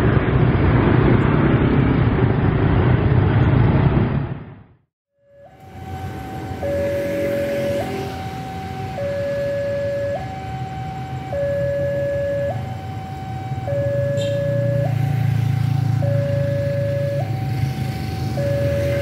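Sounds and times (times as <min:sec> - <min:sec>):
diesel locomotive engine rumble: 0:00.0 - 0:19.0
two-tone level crossing alarm: 0:05.2 - 0:19.0.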